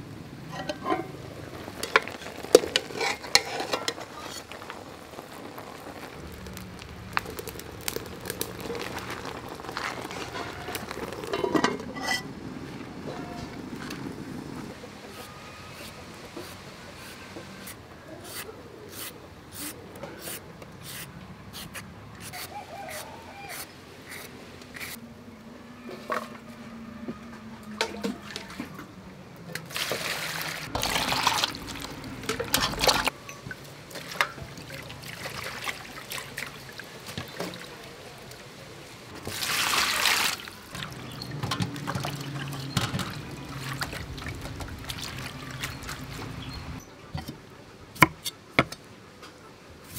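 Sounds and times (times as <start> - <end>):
splashing vegetables rinsed by hand: 29.6 - 33.1, 33.9 - 38.0, 39.2 - 46.8
water pouring into steel bowl: 29.7 - 33.1, 39.2 - 46.4.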